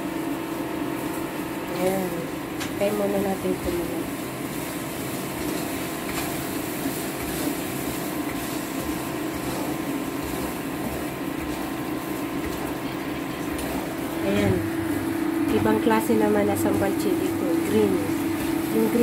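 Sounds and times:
machine hum: 0:00.0 - 0:19.0.

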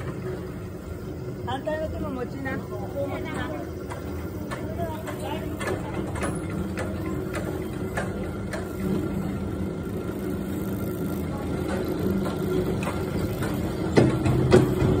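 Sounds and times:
low mechanical hum of machinery: 0:00.0 - 0:15.0
clicks of chairs over pulleys: 0:03.2 - 0:15.0.

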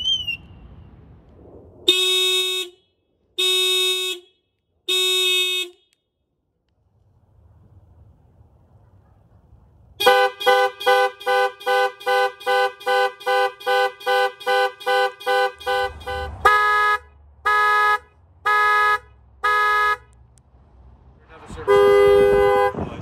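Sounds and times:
car alarm honking: 0:10.0 - 0:20.2, 0:21.6 - 0:23.0.

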